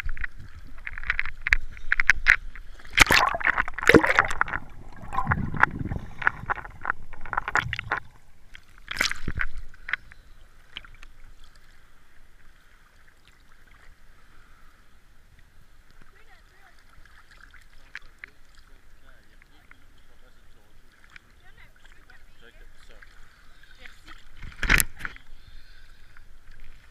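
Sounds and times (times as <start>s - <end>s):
water splashing against camera: 0.0s - 11.6s, 20.6s - 26.9s.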